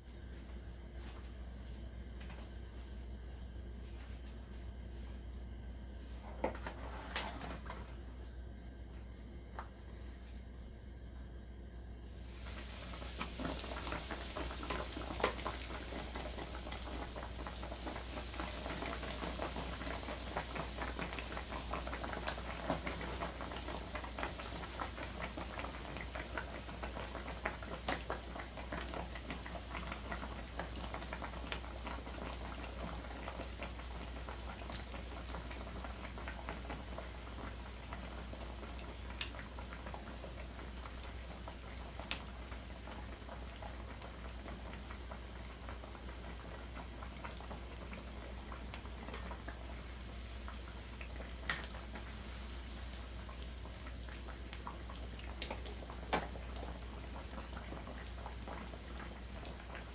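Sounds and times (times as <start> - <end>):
oil crackling and popping: 12.4 - 59.9.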